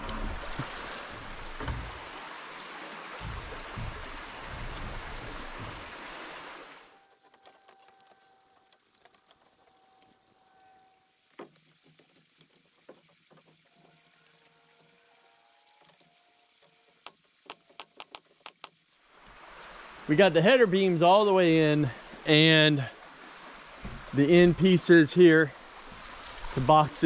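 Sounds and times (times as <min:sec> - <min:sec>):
rushing noise with low buffeting: 0:03.2 - 0:06.5.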